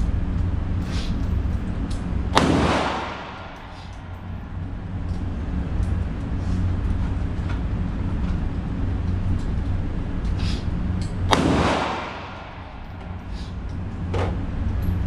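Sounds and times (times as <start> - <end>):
steady low hum: 0.0 - 15.0
pistol shot with echo: 2.3 - 3.9, 11.3 - 12.8.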